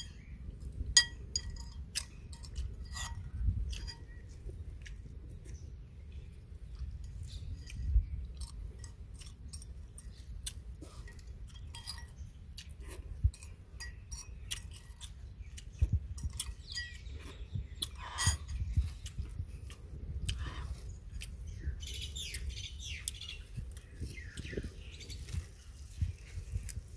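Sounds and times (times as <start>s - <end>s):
birds chirping: 0.0s - 26.9s
person chewing: 0.1s - 26.9s
spoon scraping ceramic bowl: 1.0s - 4.2s, 17.9s - 18.6s.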